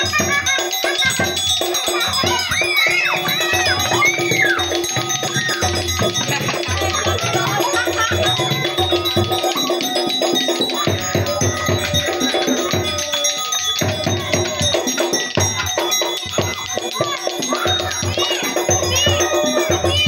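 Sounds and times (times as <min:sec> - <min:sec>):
drum beat: 0:00.0 - 0:20.0
ringing bell-like metal tones: 0:00.0 - 0:20.0.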